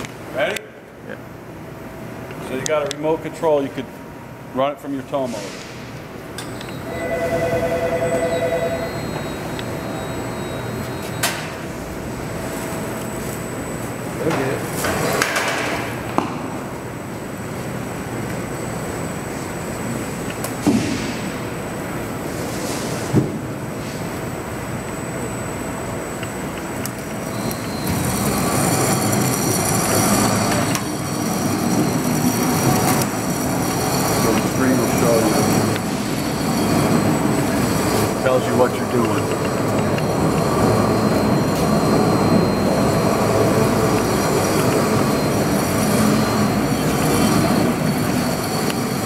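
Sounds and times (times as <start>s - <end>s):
machine whine over low rumble: 6.2s - 14.5s, 23.4s - 49.0s.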